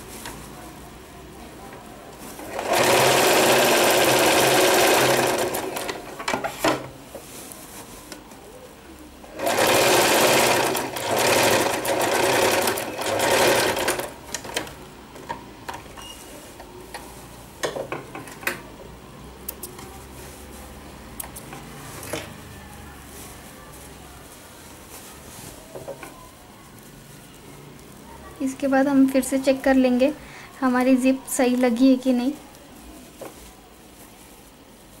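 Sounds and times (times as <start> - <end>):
sewing machine stitching: 2.4 - 6.2, 9.3 - 14.7.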